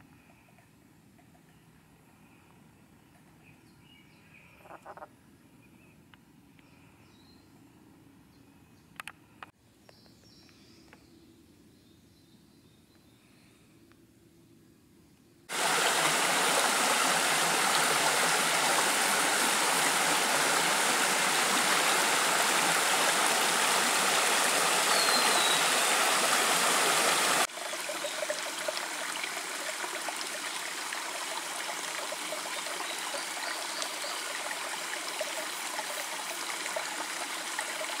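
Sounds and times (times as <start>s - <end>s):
stream rushing over rocks: 15.5s - 38.0s.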